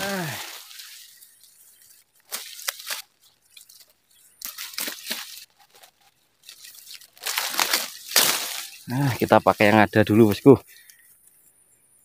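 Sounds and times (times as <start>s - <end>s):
grass rustling and crunching: 0.0s - 11.4s.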